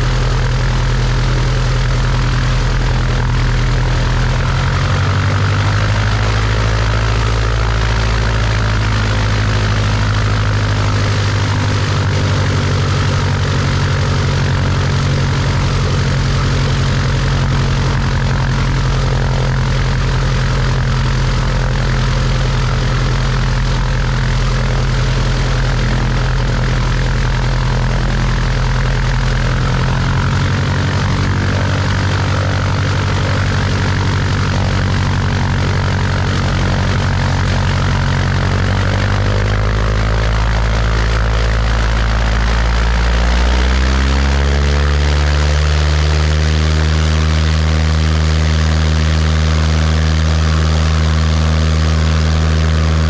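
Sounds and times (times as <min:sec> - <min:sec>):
light aircraft engine and propeller: 0:00.0 - 0:53.0.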